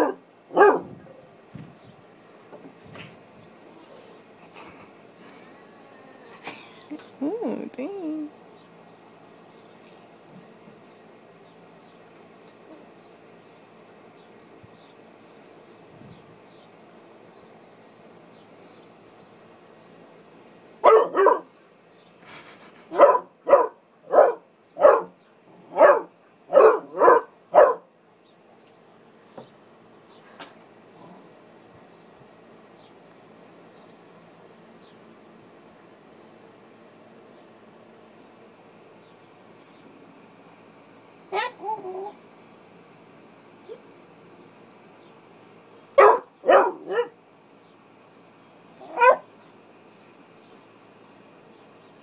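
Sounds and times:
puppy barking: 0.0s - 0.9s, 20.8s - 21.5s, 22.9s - 27.9s, 41.3s - 42.2s, 46.0s - 47.2s, 48.8s - 49.3s.

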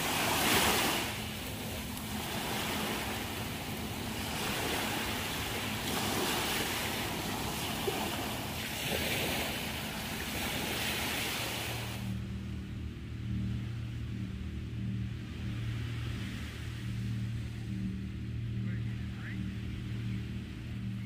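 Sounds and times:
waves breaking on shore: 0.0s - 12.2s.

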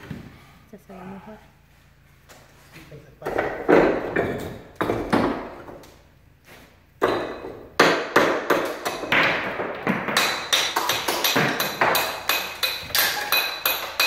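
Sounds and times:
hammer striking stone: 7.0s - 14.0s.

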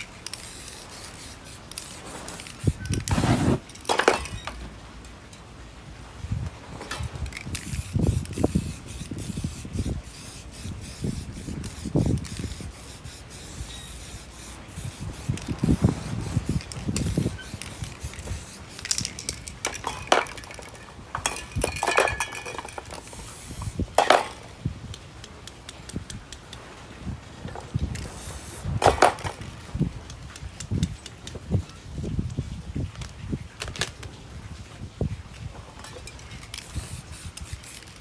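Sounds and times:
spray paint can hissing: 0.0s - 3.8s, 7.3s - 24.4s, 27.9s - 29.4s, 36.4s - 38.0s.

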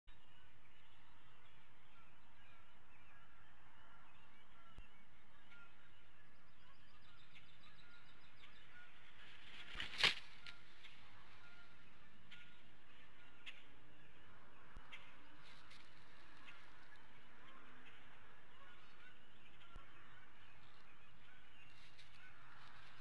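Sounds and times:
faint small-bird chirps: 4.0s - 9.1s
rush of wings: 9.2s - 10.6s
bird landing hit: 9.5s - 10.6s.

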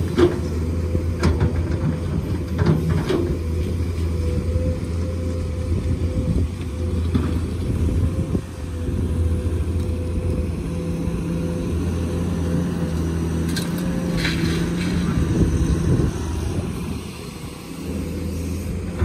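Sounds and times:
excavator diesel engine running: 0.0s - 19.0s
steady hydraulic tone: 14.4s - 19.0s.

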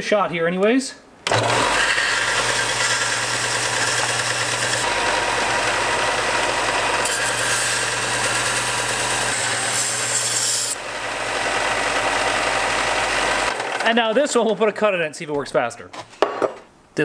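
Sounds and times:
sander motor hum: 1.3s - 13.9s
belt sander grinding metal: 1.3s - 14.0s.

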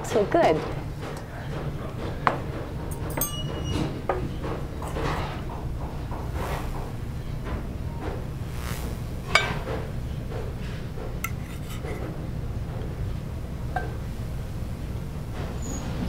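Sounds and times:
steady low hum: 0.8s - 15.6s
metal utensils clinking in a pan: 3.1s - 3.7s, 11.3s - 12.0s.

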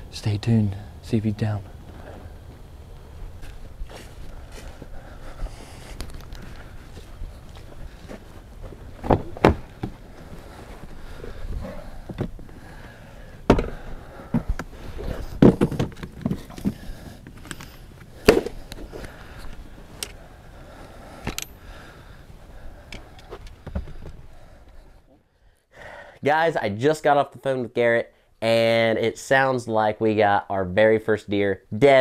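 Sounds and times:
footsteps crunching through brush: 1.7s - 12.6s
rustling brush: 1.7s - 13.2s.

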